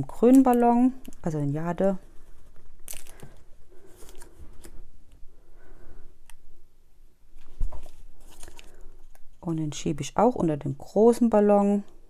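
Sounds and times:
paper rustling: 1.9 - 4.8, 7.4 - 8.8.

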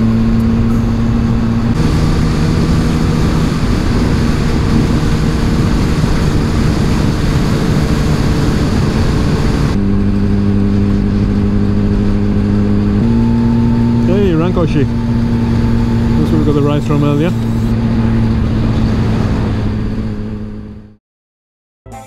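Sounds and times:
wind noise on microphone: 0.0 - 12.4
motorcycle engine running: 0.0 - 18.8.

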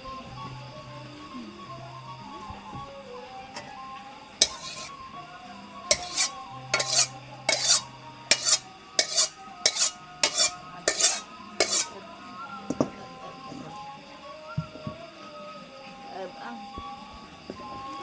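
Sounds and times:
utensil clattering against cookware: 4.4 - 4.9, 5.9 - 11.9.

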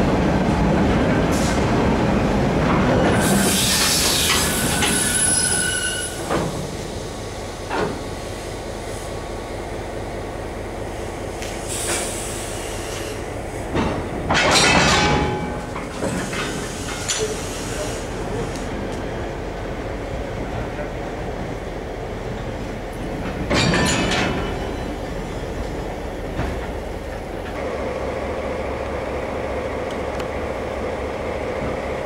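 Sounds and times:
wheels screeching on rails: 2.8 - 7.1, 15.6 - 18.7.

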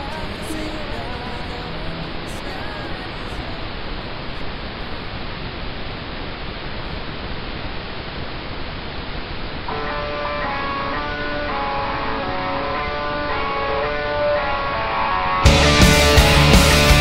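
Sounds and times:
static hiss: 0.0 - 15.2
soundtrack music: 9.7 - 17.0.

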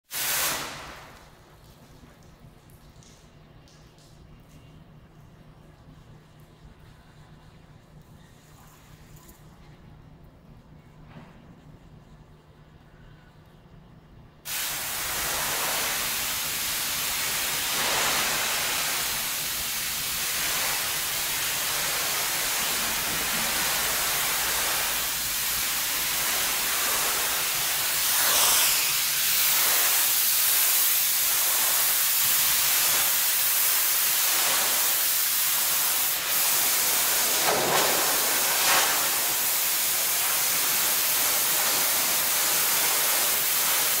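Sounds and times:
pressure washer water jet hissing: 0.1 - 1.2, 14.5 - 44.0.

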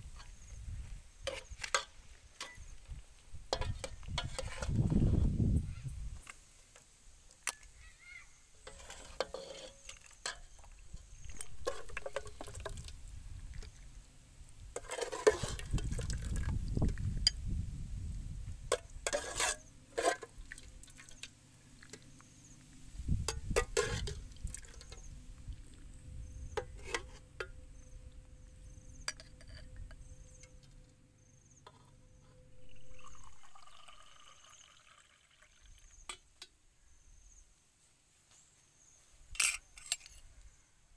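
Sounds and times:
water pouring into mug: 32.6 - 36.0.

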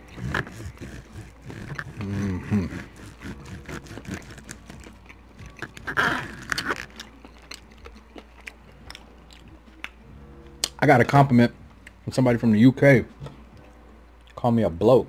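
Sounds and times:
chewing and mouth noises: 0.0 - 10.8.

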